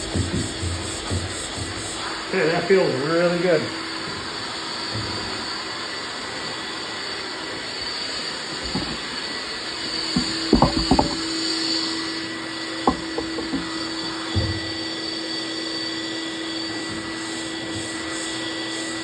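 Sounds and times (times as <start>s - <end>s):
knocks of hose and sanding block: 0.0s - 2.1s, 8.6s - 9.1s, 10.1s - 11.3s, 12.9s - 14.6s
shop vacuum running: 0.0s - 19.0s.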